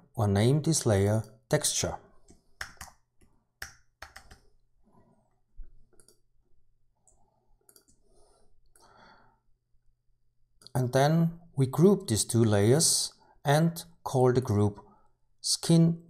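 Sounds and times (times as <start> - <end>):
computer keys and mouse clicking: 2.3 - 4.5, 5.8 - 6.3, 7.0 - 8.0.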